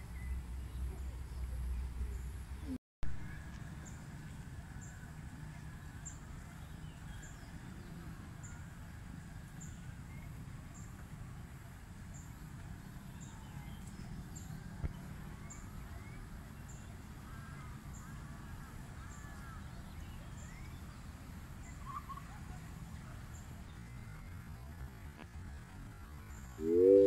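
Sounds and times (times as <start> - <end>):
birds chirping: 26.3 - 27.0
high thin bird note: 26.6 - 27.0.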